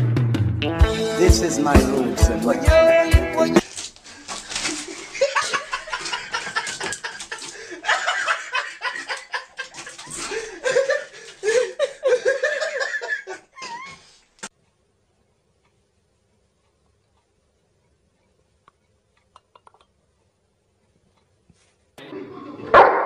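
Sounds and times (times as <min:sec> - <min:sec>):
person laughing: 0:04.7 - 0:14.1.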